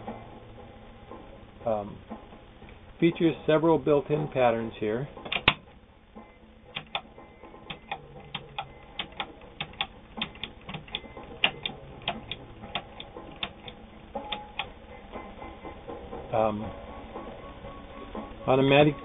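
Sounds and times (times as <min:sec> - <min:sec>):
sewing machine selector clicks: 0:06.8 - 0:07.1.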